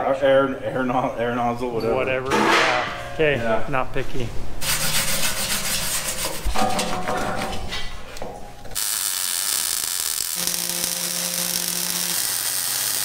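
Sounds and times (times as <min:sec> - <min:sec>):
hand tool scraping steel: 0:04.6 - 0:07.9
welding arc crackling hiss: 0:08.8 - 0:13.0.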